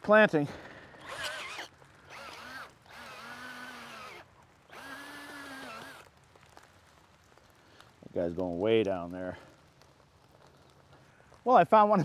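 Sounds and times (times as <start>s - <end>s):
power drill boring into soil: 1.0s - 6.1s.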